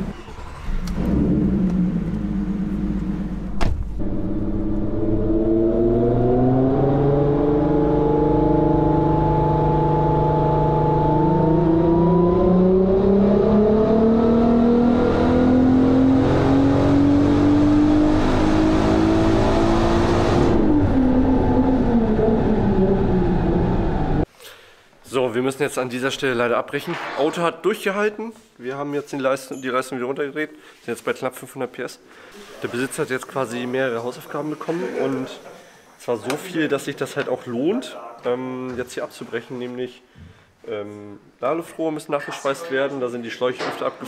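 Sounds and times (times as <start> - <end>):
engine revving under full load: 0.0 - 24.3.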